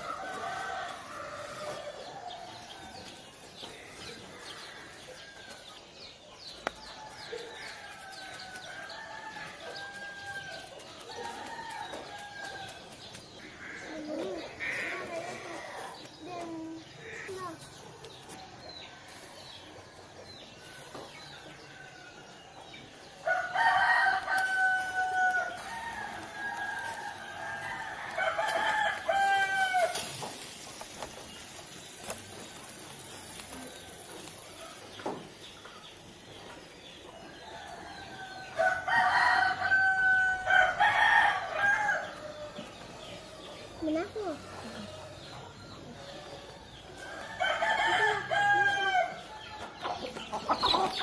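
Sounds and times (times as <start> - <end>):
rooster crowing: 23.2 - 30.0, 37.3 - 42.7, 46.0 - 49.4.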